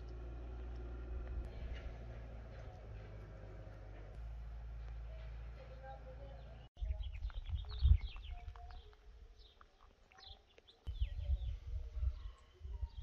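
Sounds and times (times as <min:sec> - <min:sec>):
birds chirping: 0:04.9 - 0:13.0
low gusty rumble: 0:10.9 - 0:13.0.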